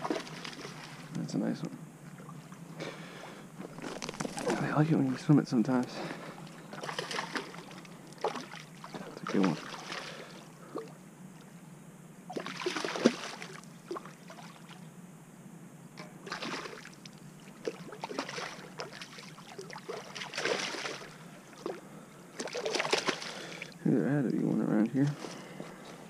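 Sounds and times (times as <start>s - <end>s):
fish splashing water: 0.0s - 1.1s, 6.4s - 10.9s, 12.3s - 14.8s, 16.2s - 23.8s.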